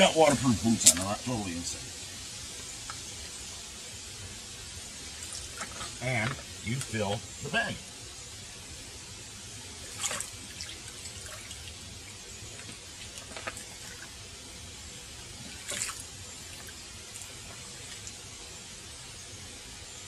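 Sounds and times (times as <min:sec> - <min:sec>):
water splashing and sloshing: 0:09.8 - 0:14.2, 0:15.3 - 0:18.3.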